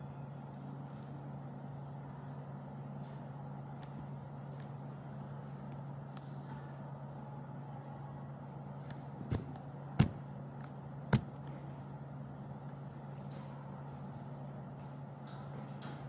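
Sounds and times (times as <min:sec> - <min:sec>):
low room hum: 0:00.0 - 0:16.0
sharp knocks: 0:09.2 - 0:10.2, 0:11.1 - 0:11.4.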